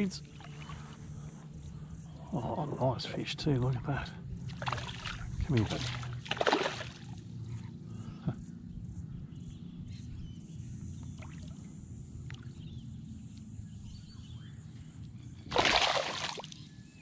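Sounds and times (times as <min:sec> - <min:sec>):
faint water splashes: 0:00.0 - 0:01.4, 0:04.4 - 0:07.2, 0:15.5 - 0:16.6
low water rumble: 0:00.0 - 0:07.6.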